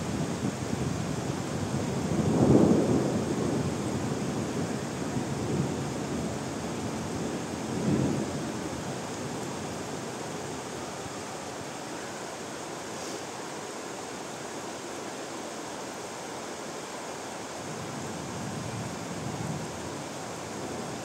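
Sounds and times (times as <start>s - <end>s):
steady rainfall hiss: 0.0s - 21.0s
thunder rumble: 1.6s - 10.0s.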